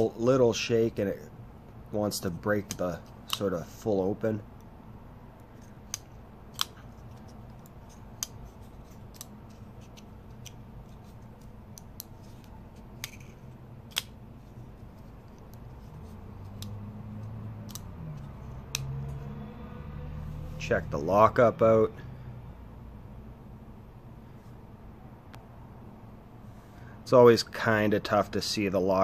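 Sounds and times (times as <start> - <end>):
folding knife clicking open and shut: 5.9 - 6.8, 17.6 - 17.9.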